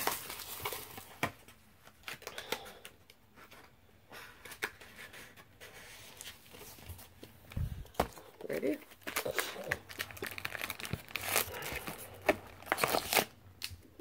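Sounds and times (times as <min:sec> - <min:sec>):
plastic wrap crinkling: 0:00.0 - 0:02.7, 0:06.1 - 0:14.0.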